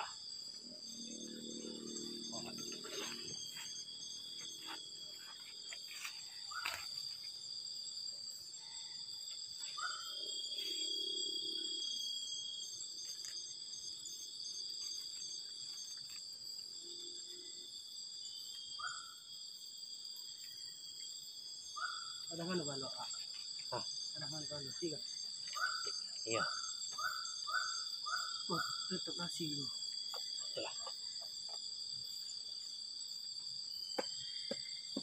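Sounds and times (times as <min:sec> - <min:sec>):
crickets and insects trilling: 0:00.0 - 0:35.0.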